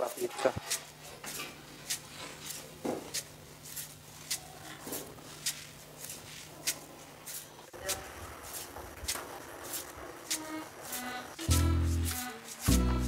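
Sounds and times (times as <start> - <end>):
wood fire crackling: 0.0 - 13.0
steady low hum: 10.4 - 13.0.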